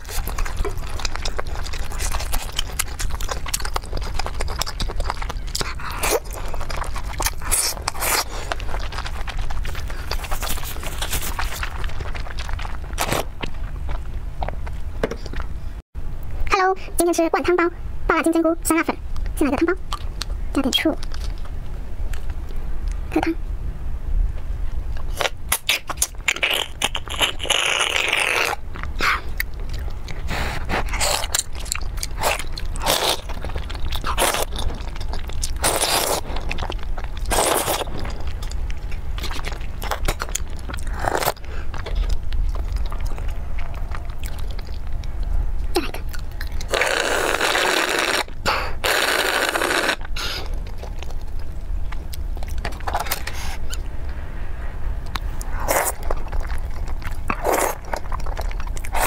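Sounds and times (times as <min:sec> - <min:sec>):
slurping through a straw: 0:46.6 - 0:50.5.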